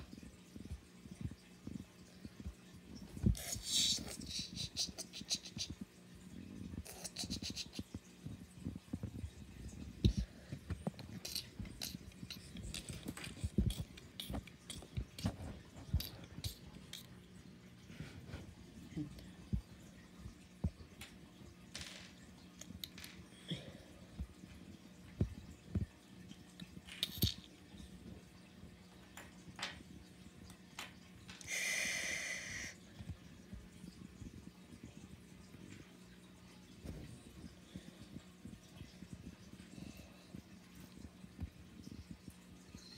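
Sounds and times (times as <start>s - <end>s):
rasping hiss: 31.4s - 32.8s.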